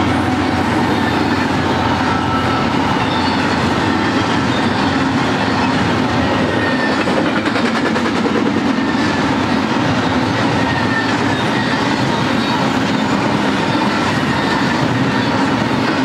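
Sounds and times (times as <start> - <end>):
train wheels rumbling on rails: 0.0 - 16.0
faint wheel squealing: 0.4 - 7.4.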